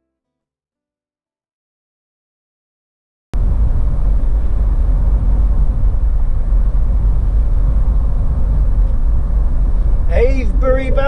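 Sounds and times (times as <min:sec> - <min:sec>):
vehicle engine and tyre rumble: 0:03.4 - 0:11.0.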